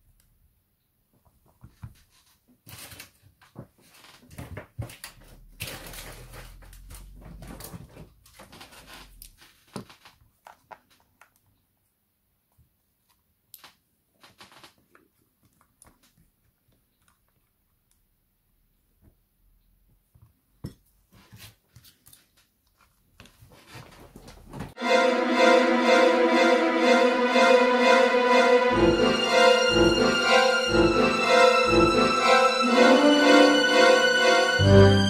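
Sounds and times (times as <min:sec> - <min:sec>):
faint clicks and taps: 0:09.2 - 0:18.1
theme music with strings: 0:24.8 - 0:35.0.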